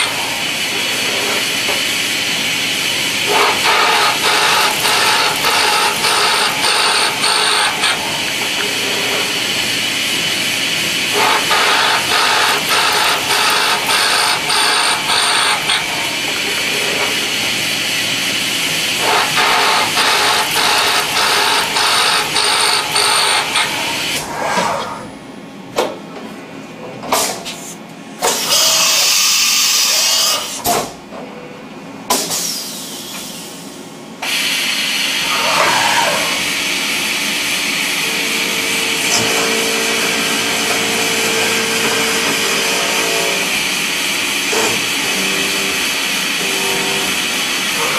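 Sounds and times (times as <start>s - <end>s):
milling machine cutting metal: 0.0s - 24.3s, 37.4s - 47.9s.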